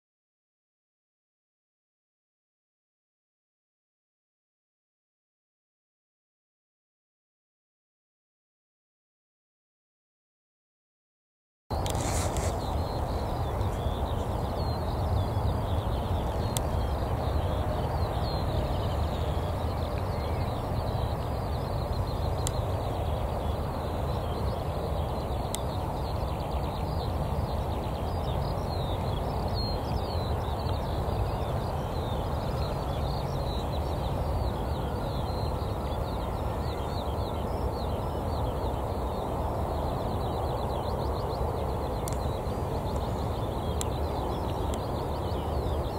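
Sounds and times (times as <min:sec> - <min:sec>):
jet engines rumbling: 0:11.7 - 0:45.9
small birds chirping: 0:11.7 - 0:45.9.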